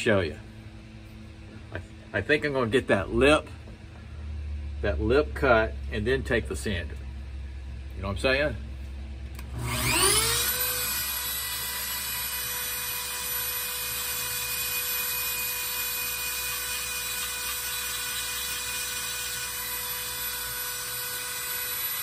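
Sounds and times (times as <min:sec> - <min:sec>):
rotary tool high whine: 0:09.2 - 0:22.0.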